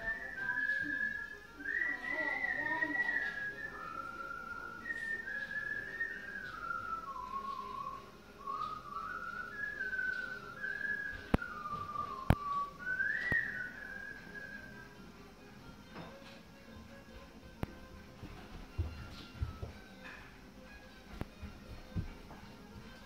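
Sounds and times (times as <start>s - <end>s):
person whistling a slow tune: 0.0s - 15.0s.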